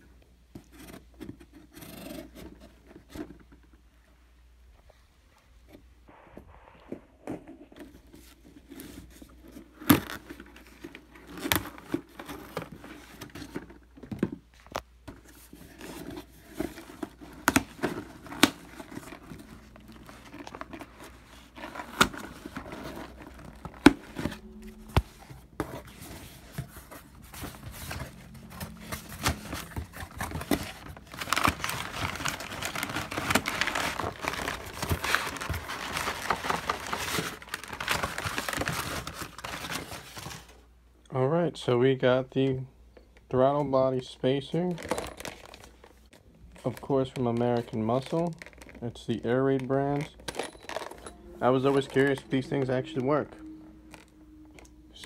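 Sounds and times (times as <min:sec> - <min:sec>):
packing paper crumpling: 0:15.4 - 0:40.6
packing tape tearing: 0:27.6 - 0:40.2.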